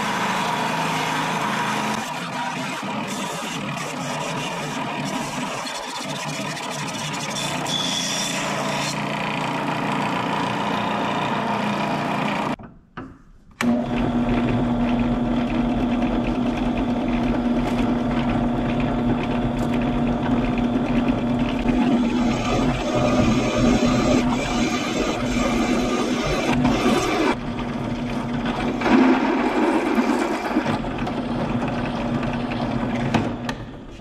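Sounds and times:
electric power tool running: 19.4s - 27.4s.

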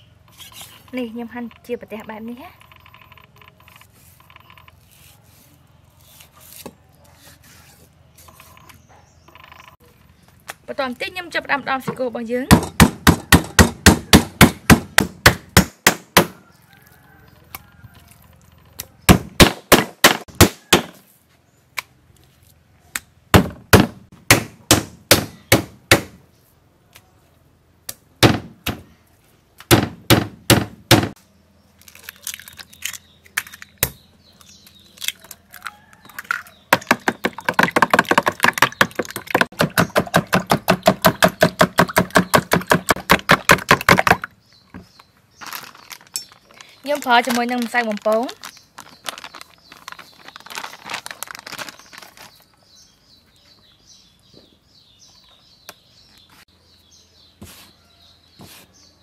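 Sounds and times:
cleaver pounding meat on wood: 12.5s - 16.4s, 19.1s - 21.0s, 23.3s - 26.2s, 29.7s - 31.2s, 36.7s - 44.9s.

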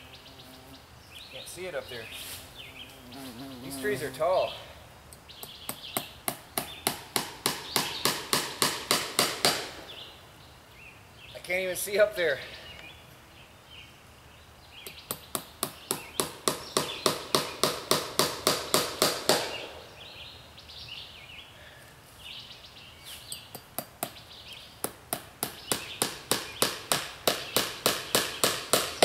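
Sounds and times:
hammer striking nails: 5.4s - 9.8s, 14.9s - 19.7s, 24.8s - 29.0s.

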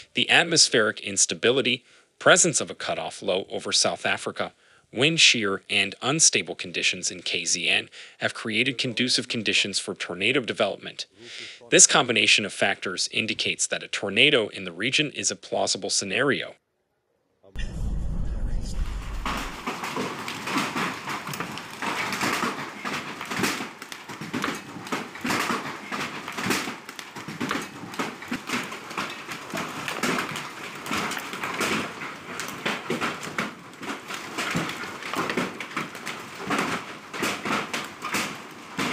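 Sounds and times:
hailstones clattering on ground: 19.1s - 38.9s.

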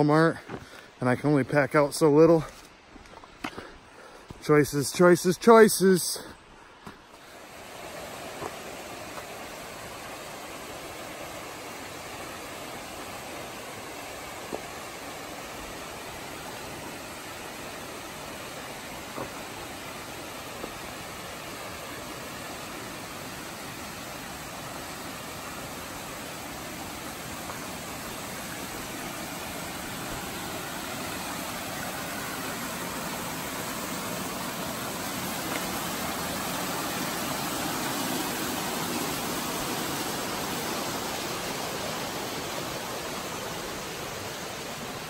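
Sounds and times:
stream rushing over rocks: 0.0s - 45.0s.

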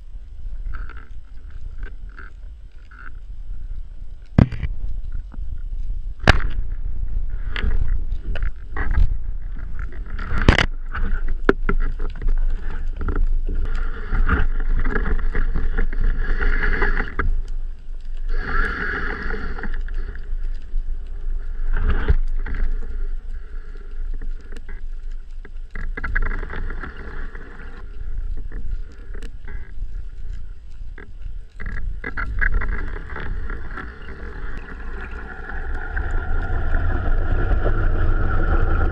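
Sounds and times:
crackling clicks: 0.0s - 38.9s
low underwater rumble: 0.0s - 38.9s
sharp underwater knocks: 6.2s - 6.8s
humming whine: 31.6s - 38.9s.

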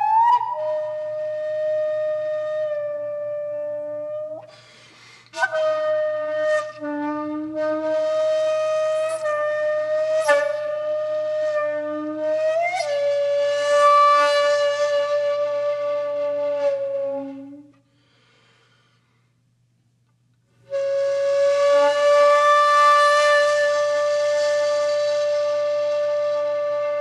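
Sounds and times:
wind instrument long notes: 20.7s - 27.0s.

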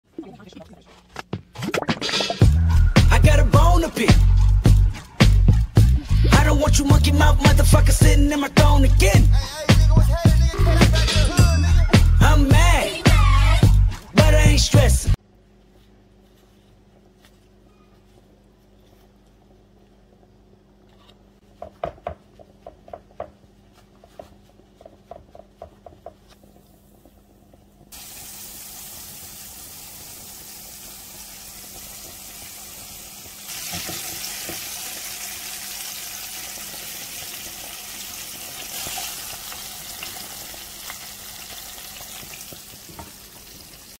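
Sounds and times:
fish frying in hot oil: 27.9s - 44.0s.

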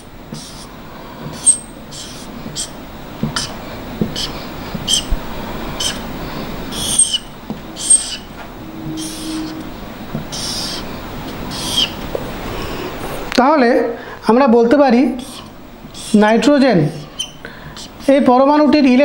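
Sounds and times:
marker squeaking on whiteboard: 0.3s - 0.7s, 1.3s - 5.2s, 5.8s - 12.0s, 15.2s - 18.4s.

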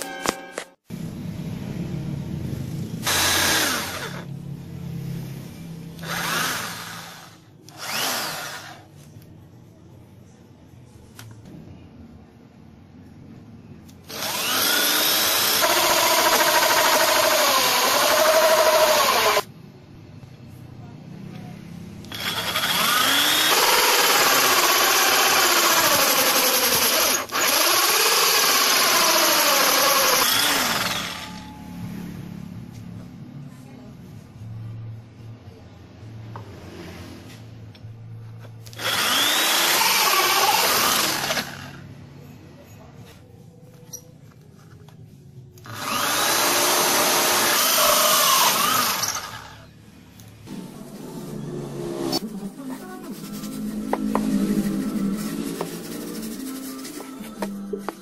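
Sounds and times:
electric drill cutting wood: 3.0s - 4.3s, 6.0s - 8.9s, 14.1s - 19.5s, 22.1s - 31.4s, 38.7s - 41.8s, 45.6s - 49.6s.

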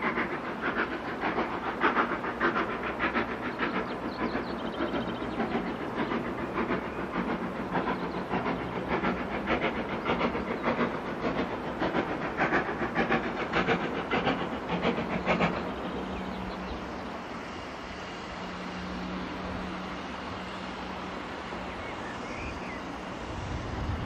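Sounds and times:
steam locomotive exhaust beating: 0.0s - 24.0s.

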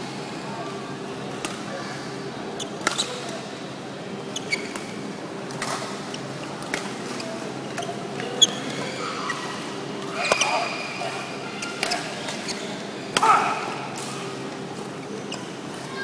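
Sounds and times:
sports shoes squeaking on floor: 4.3s - 5.0s, 7.2s - 9.4s, 10.2s - 12.8s.

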